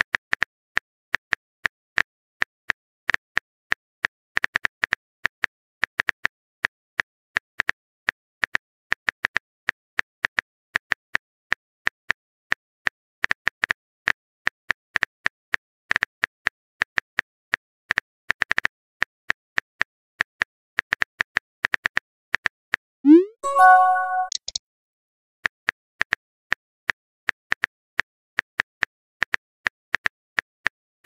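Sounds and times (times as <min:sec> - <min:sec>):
keyboard typing clicks: 0:23.1 - 0:24.6.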